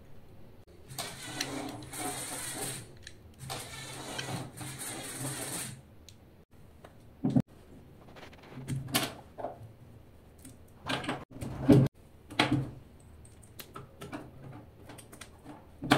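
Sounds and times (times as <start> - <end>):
small electric motors whirring: 0.9 - 5.8.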